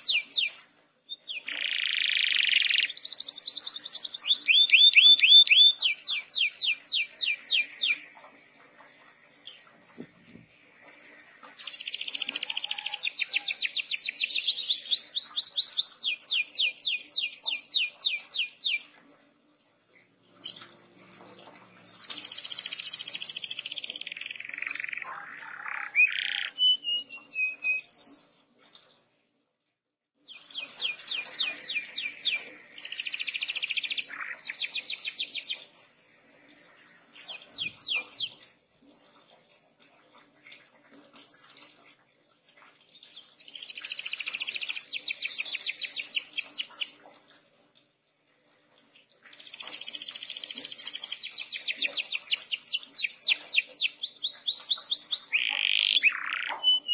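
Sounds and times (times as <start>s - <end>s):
canary singing trills: 0.0s - 8.2s, 11.5s - 18.9s, 21.9s - 28.3s, 30.2s - 35.6s, 37.2s - 38.4s, 49.4s - 56.9s.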